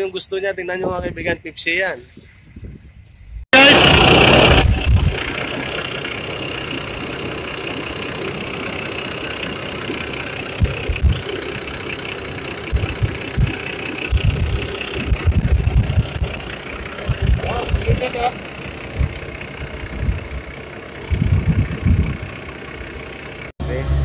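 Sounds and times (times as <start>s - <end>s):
diesel engine idling: 3.6s - 24.0s
low thumps: 12.6s - 18.2s.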